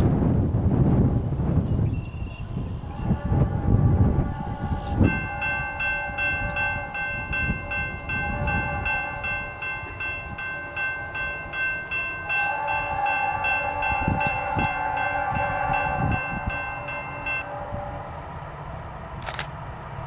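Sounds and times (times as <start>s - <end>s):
train horn: 2.4s - 20.0s
crossing bell ringing: 3.0s - 18.4s.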